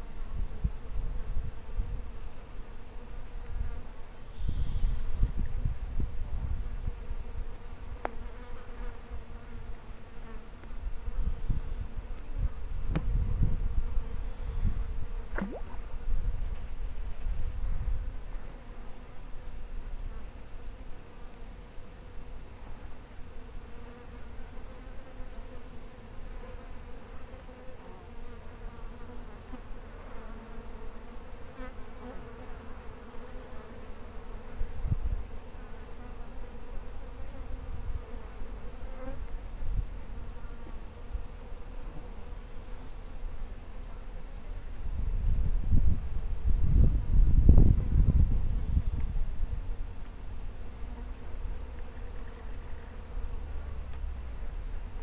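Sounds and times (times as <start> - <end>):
flying insect buzzing: 0.0 - 19.4, 23.2 - 55.0
low wind rumble: 44.9 - 50.7.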